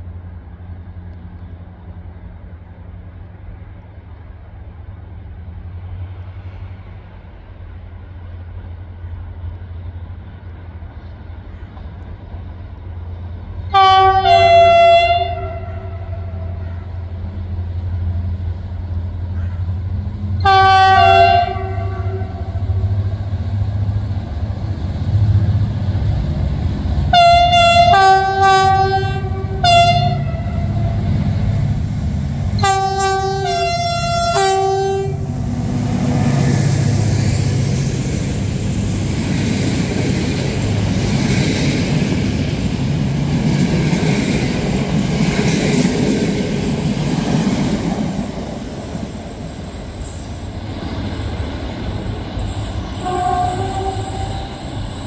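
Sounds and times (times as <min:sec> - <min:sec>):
train rumble and rattle: 0:00.0 - 0:55.0
two-tone air horn blasts: 0:13.7 - 0:16.7, 0:20.4 - 0:22.6, 0:27.1 - 0:31.0, 0:32.6 - 0:35.3, 0:52.9 - 0:55.0.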